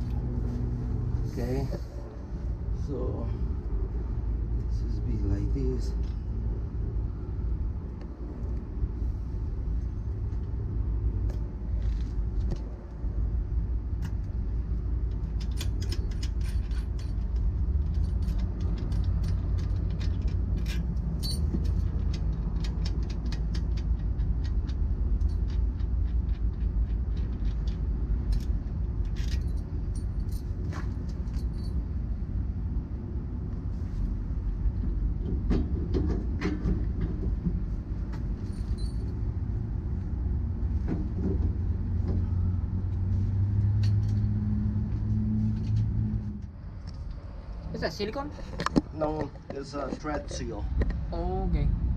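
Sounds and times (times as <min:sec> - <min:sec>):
steady low rumble: 0:00.0 - 0:51.9
light metal clicks and clinks: 0:38.4 - 0:39.2.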